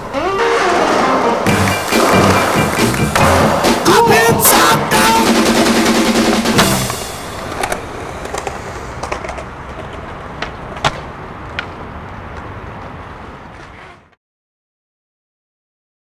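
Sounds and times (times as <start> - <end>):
skateboard wheels rolling on asphalt: 0.0 - 3.8, 5.8 - 14.2
skateboard clacks: 0.9 - 14.1.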